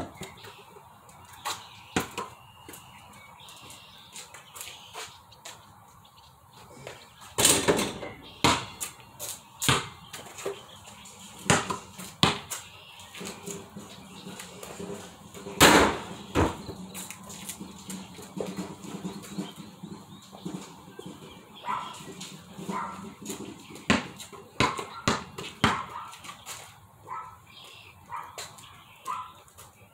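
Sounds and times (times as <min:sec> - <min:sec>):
basketball striking hoop: 0:07.4 - 0:08.8, 0:09.7 - 0:10.0, 0:11.4 - 0:12.5, 0:15.6 - 0:16.6, 0:23.9 - 0:25.9
basketball bouncing: 0:07.4 - 0:09.0, 0:09.6 - 0:10.3, 0:11.4 - 0:12.6, 0:15.5 - 0:16.8, 0:22.6 - 0:26.0.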